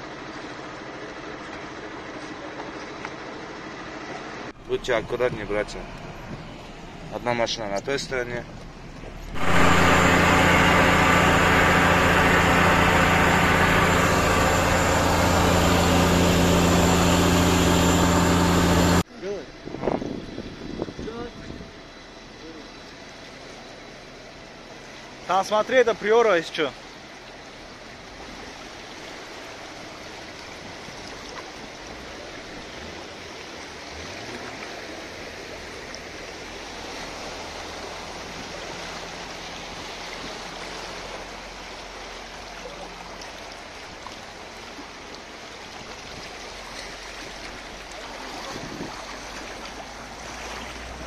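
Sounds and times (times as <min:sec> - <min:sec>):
low engine hum: 0:00.0 - 0:25.2, 0:26.9 - 0:51.0
floodwater rushing: 0:03.4 - 0:19.0, 0:26.0 - 0:51.0.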